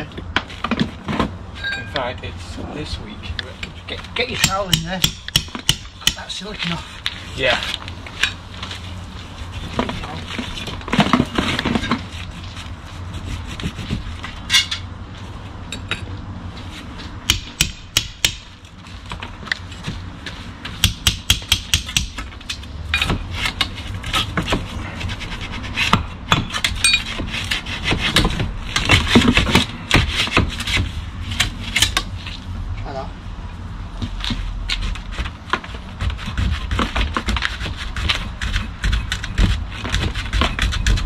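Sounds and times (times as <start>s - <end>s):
stone and tools knocking and scraping: 0.3s - 2.1s, 15.7s - 16.1s, 20.7s - 24.7s, 25.8s - 30.5s.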